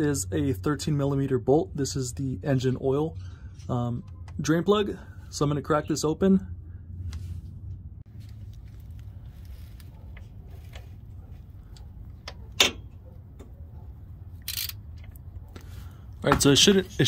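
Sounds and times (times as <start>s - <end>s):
ratchet clicking: 14.4s - 14.8s.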